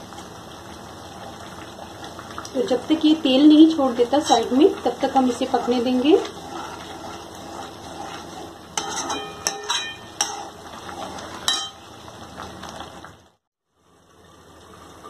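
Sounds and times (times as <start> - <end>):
spoon scraping metal pan: 4.2 - 11.8
spoon stirring thick gravy: 4.2 - 11.8.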